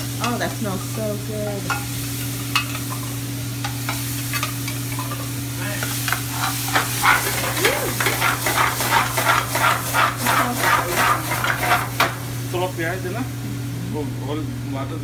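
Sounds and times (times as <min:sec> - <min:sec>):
spices sizzling in hot oil: 0:00.0 - 0:14.2
ladle scraping pan: 0:05.8 - 0:12.2.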